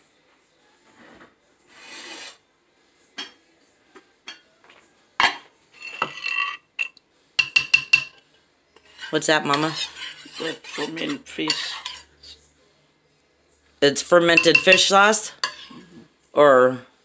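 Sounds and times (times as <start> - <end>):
pestle scraping in clay mortar: 8.8 - 12.1.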